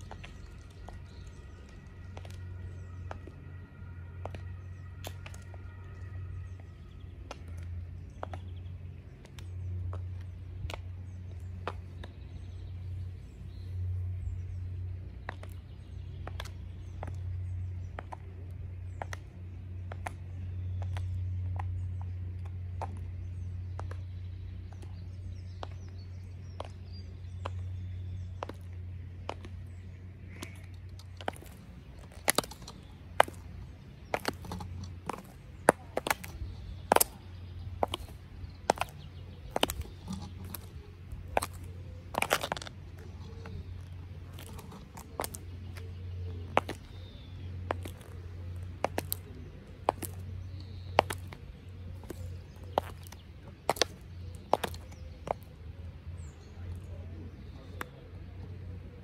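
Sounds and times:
high heels clicking on stone: 0:00.0 - 0:03.4, 0:04.2 - 0:08.6, 0:19.0 - 0:29.7, 0:30.4 - 0:55.5.

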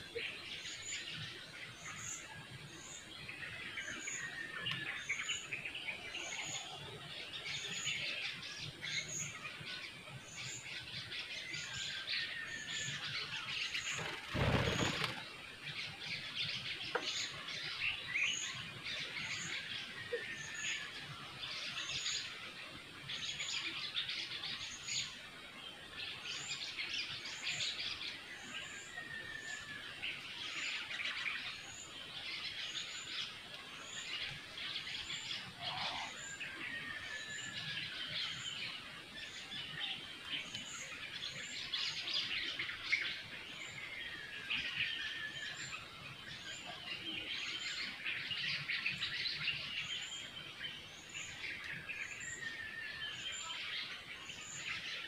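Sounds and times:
birds chirping: 0:00.0 - 0:25.2.

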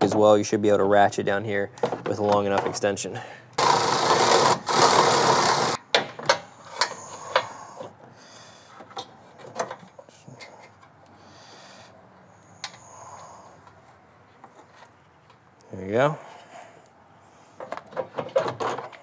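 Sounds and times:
electric ratchet running: 0:03.6 - 0:05.8.

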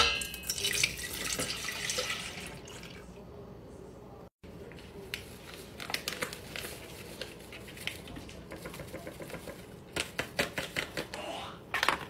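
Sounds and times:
light clicks and taps from packet and pan: 0:04.7 - 0:11.1.

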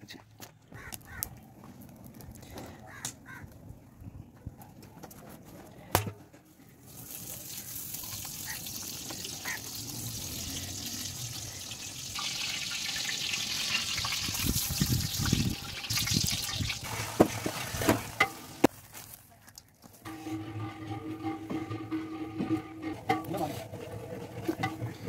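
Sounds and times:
oil pouring into metal pot: 0:06.9 - 0:18.4.

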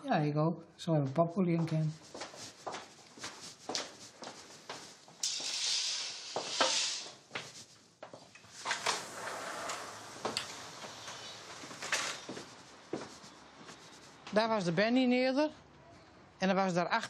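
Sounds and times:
rustling hiss: 0:02.2 - 0:07.8, 0:08.4 - 0:14.3.

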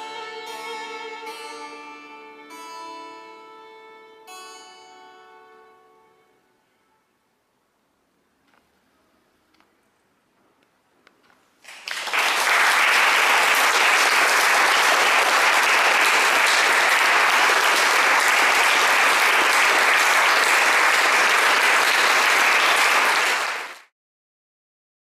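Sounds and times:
audience applauding: 0:11.6 - 0:23.9.

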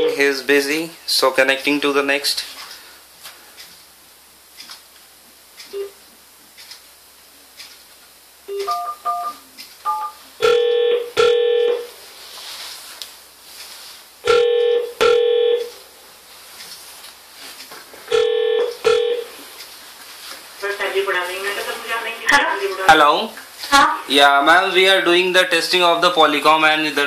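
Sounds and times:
keypad dialing tones: 0:08.5 - 0:11.9, 0:18.1 - 0:19.3
double-beat ringback tone: 0:18.1 - 0:19.3.

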